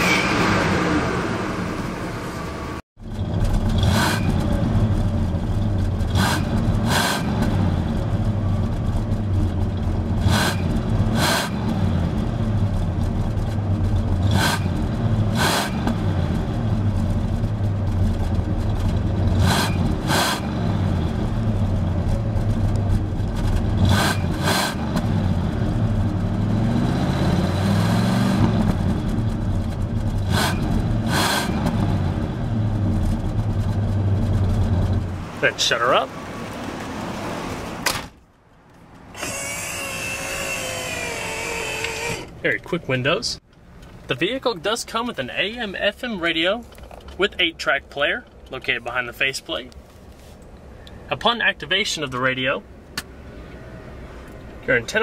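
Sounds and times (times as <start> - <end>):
engine revving: 0.0 - 5.2, 6.0 - 8.3, 10.0 - 12.7, 14.0 - 17.0, 19.0 - 21.8, 23.2 - 36.0
car engine idling: 7.7 - 11.2.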